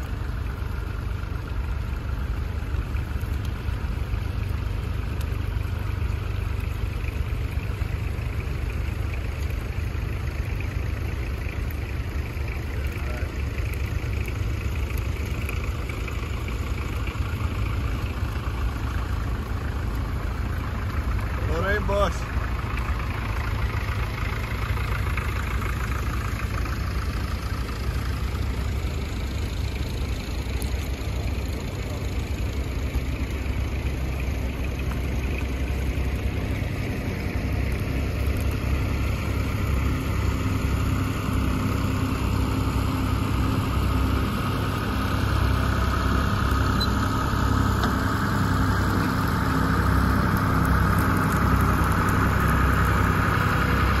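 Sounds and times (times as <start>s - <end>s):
tractor engine running: 0.0s - 54.0s
whine: 19.4s - 54.0s.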